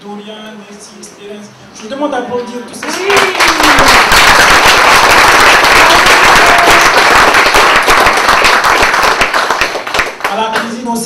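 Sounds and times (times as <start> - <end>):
audience applauding: 2.8 - 10.7.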